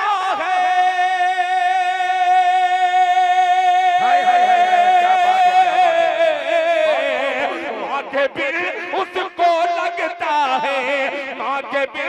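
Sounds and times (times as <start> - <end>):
man singing a long held note: 0.0 - 11.2
wavering singing: 3.6 - 7.6.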